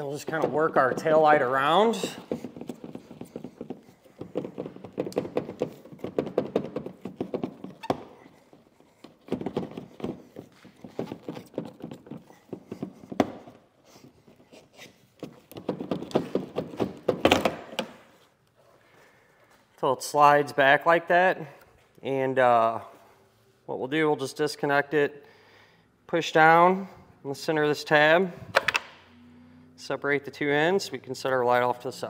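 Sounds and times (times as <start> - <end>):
plastic clicks and knocks: 2.3 - 8.0.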